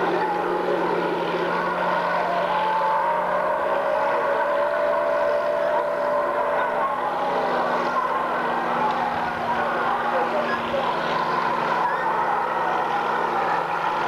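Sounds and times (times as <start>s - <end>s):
vehicle engine running: 0.0s - 14.0s.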